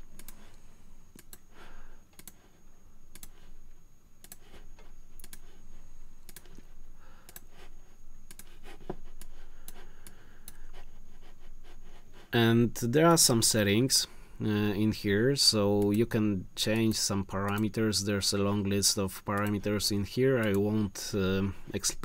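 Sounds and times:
computer mouse clicks: 0.1 - 1.4, 2.1 - 3.5, 4.2 - 5.6, 6.2 - 7.6, 8.3 - 10.7, 15.7 - 16.1, 17.4 - 17.8, 19.4 - 19.7, 20.4 - 20.7.

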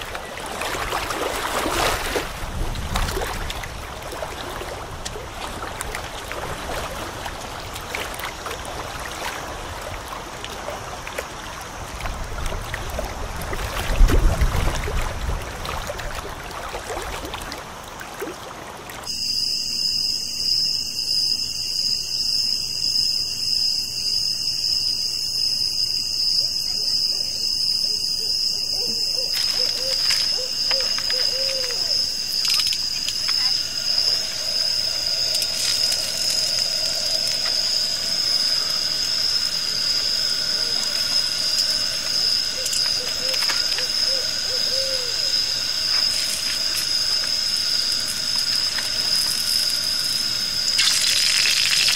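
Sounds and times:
small waves lapping at shore: 0.0 - 19.1.

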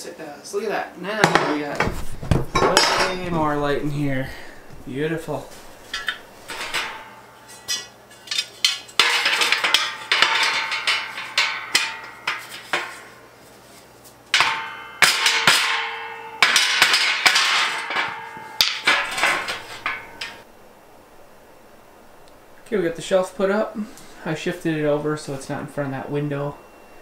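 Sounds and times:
metal rails clanking: 1.8 - 13.3, 14.3 - 20.5.

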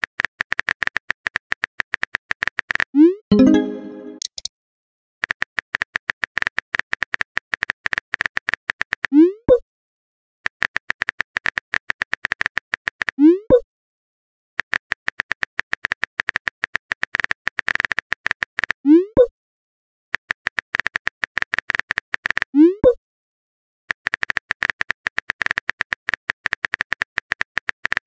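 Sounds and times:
rising message sent pop: 3.3 - 4.4
phone keyboard typing clicks: 4.2 - 4.5.

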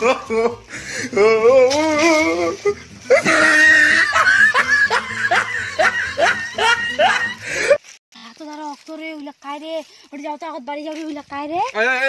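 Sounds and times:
person laughing loudly: 0.0 - 7.8.

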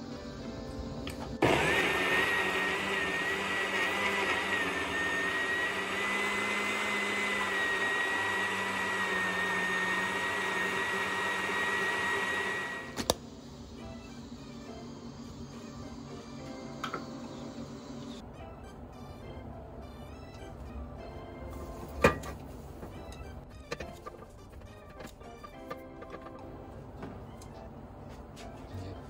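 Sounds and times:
electric blender whining: 1.4 - 13.2.

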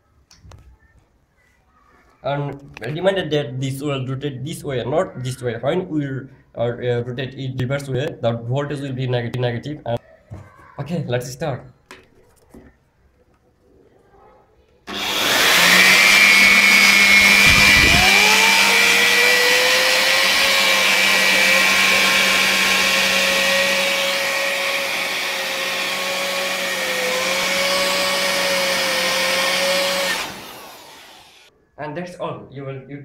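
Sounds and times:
electric air blower running: 14.9 - 31.5
rising whine: 15.1 - 31.5.

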